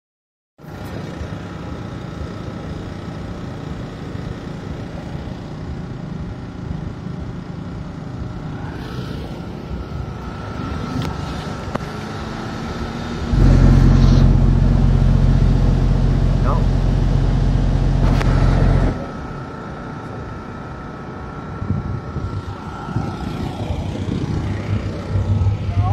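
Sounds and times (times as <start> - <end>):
steady low rumble: 0.6 - 25.9
subwoofer deep bass tone: 12.7 - 19.4, 21.4 - 25.9.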